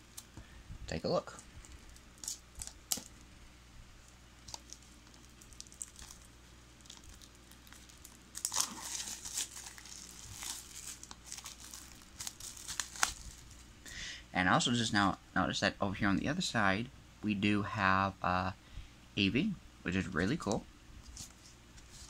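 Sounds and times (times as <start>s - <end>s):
plastic wrap tearing and crinkling: 1.6s - 3.1s, 4.4s - 13.6s.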